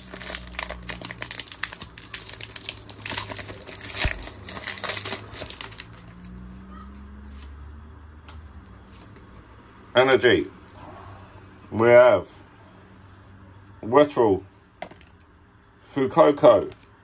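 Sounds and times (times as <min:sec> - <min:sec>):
foil wrapper crinkling and tearing: 0:00.0 - 0:06.6.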